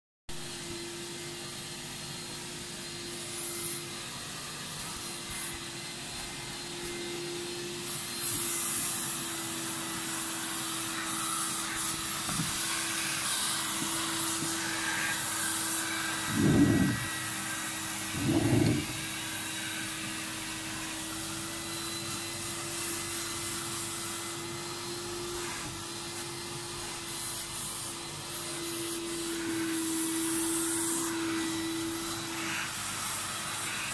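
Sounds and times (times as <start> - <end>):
vacuum machine humming: 0.3 - 33.9
chair thumping on wooden floor: 12.3 - 12.6.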